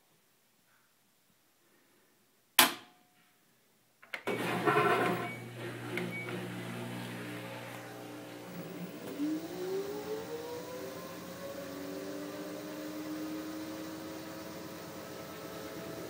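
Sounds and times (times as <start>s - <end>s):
washing machine motor hum: 4.3s - 16.0s.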